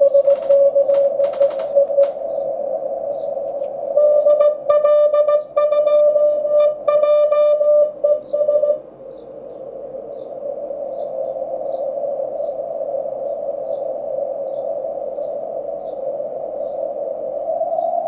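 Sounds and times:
morse code tone: 0.0 - 2.2, 4.0 - 8.8.

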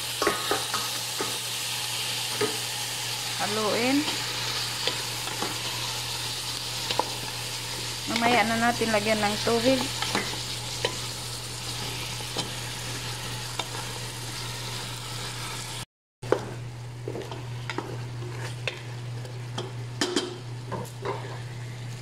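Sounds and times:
chicken sizzling in hot oil: 0.0 - 15.9
spatula scraping a pan: 4.0 - 8.4, 17.2 - 18.9.

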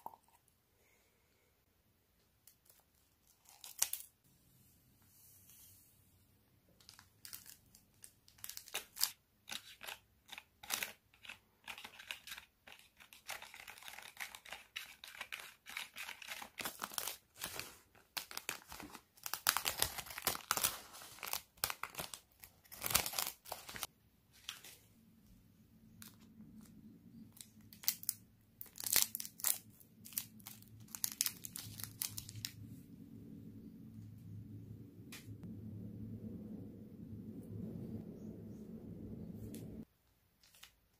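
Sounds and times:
plastic packets crinkling: 13.2 - 23.9, 27.4 - 32.6.

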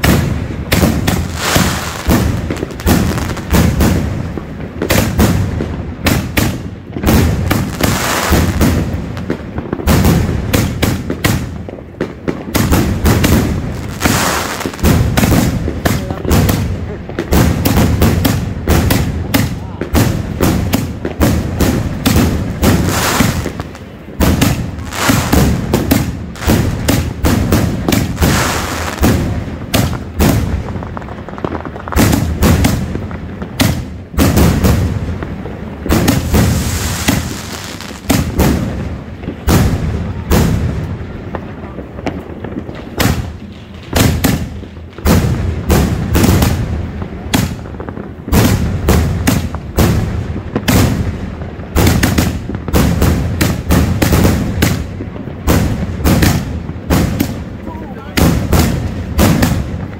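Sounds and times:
firework launch thumps: 35.9 - 38.6.

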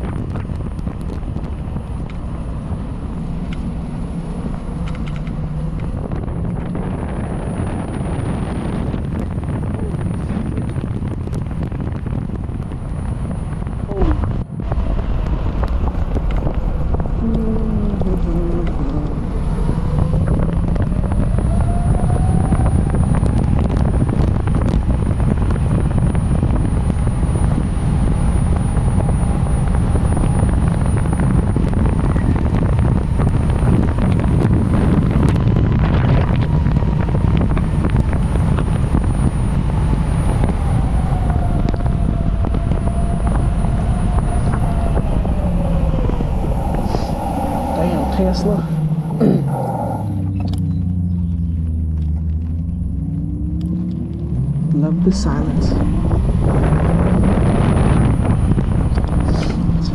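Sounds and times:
heavy wind on microphone: 0.0 - 59.9.

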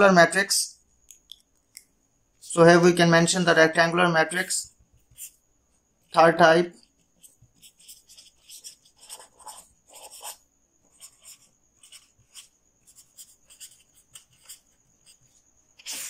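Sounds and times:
pen scratching on paper: 4.4 - 5.4, 6.8 - 16.0.

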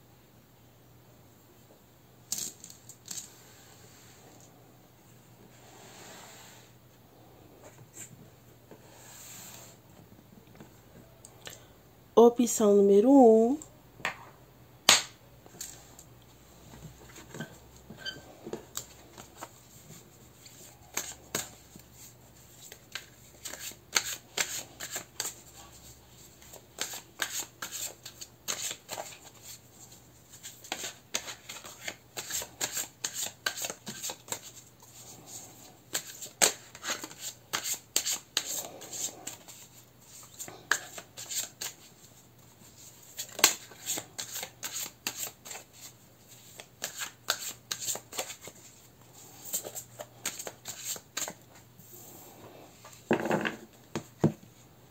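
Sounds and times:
cards being shuffled: 18.5 - 29.6, 30.3 - 42.1, 42.7 - 48.8, 49.4 - 51.4.

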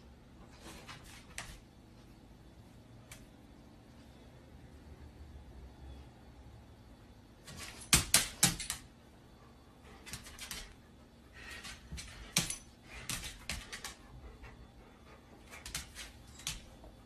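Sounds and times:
dog claws tapping on hard floor: 11.6 - 14.0.

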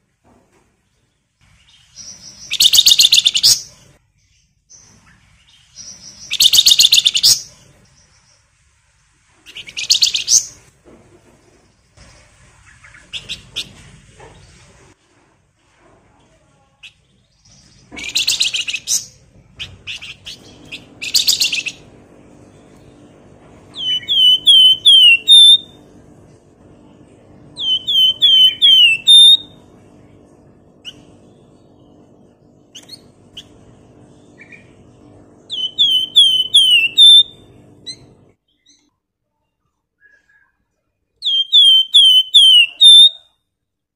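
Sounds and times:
bird whistling phrases: 2.5 - 3.7, 6.3 - 7.5, 23.8 - 25.8, 27.6 - 29.6, 35.5 - 37.4, 40.0 - 40.6, 41.2 - 43.3.

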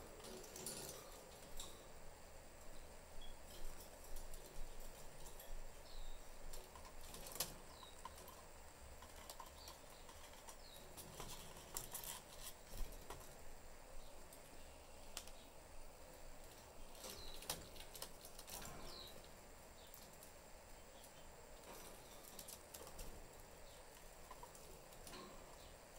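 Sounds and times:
light clicks and taps in cage: 6.5 - 13.4, 14.2 - 15.5, 16.4 - 25.9.

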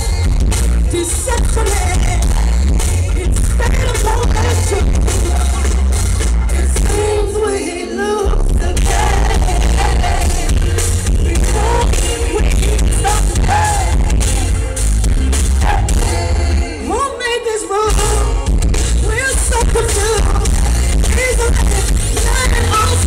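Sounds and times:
woman singing: 0.0 - 5.5, 6.6 - 14.6, 15.6 - 23.0
live band playing: 0.0 - 23.0.

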